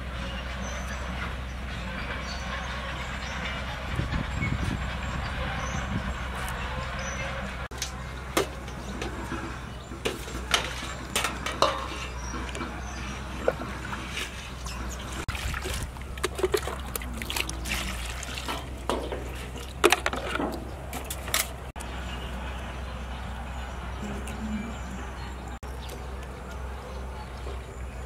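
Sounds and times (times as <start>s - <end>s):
water splashing in metal basin: 10.1s - 21.6s.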